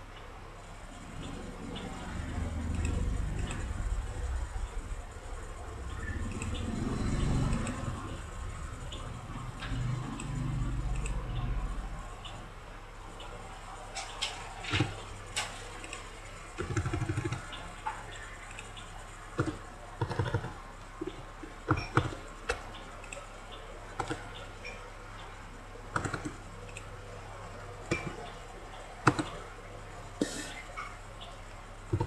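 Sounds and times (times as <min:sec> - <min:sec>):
low electrical hum: 0:00.0 - 0:32.0
computer mouse clicks: 0:01.2 - 0:04.3, 0:05.9 - 0:11.5, 0:14.0 - 0:24.8, 0:25.9 - 0:26.9, 0:27.9 - 0:28.4, 0:29.0 - 0:29.4.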